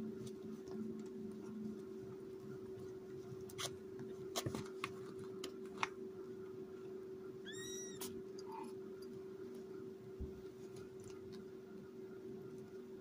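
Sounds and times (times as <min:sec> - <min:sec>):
kitten mewing: 0:07.5 - 0:08.8.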